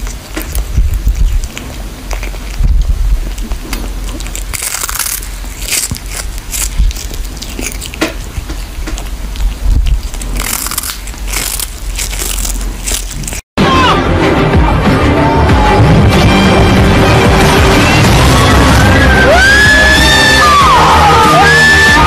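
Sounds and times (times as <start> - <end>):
cat crunching dried fish: 0.0 - 13.5
music: 13.6 - 22.0.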